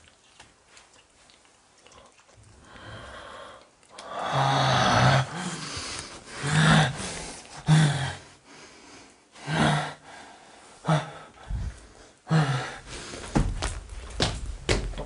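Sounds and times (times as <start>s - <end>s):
person breathing heavily: 2.6s - 13.5s.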